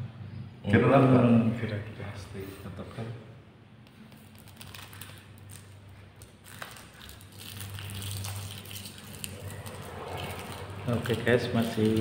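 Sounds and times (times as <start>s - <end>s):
sticks clicking on tiled floor: 6.2s - 12.0s.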